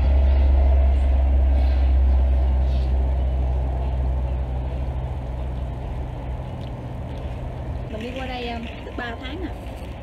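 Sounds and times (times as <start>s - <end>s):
loud low rumble: 0.0s - 7.9s.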